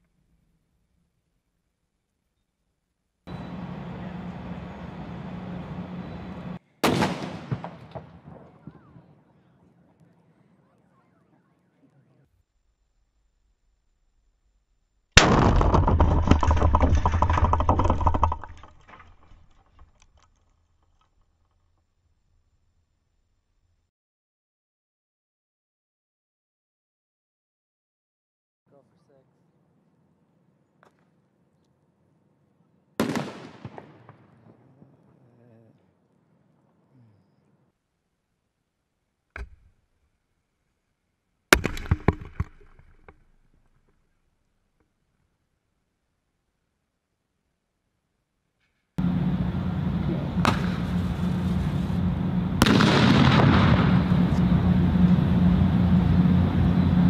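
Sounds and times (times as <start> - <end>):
fireworks exploding: 3.3 - 9.1, 33.0 - 35.0, 50.3 - 55.4
rapid crackling bangs: 6.8 - 8.7, 15.2 - 19.3, 33.0 - 35.0, 50.4 - 55.4
short pop: 50.4 - 51.7.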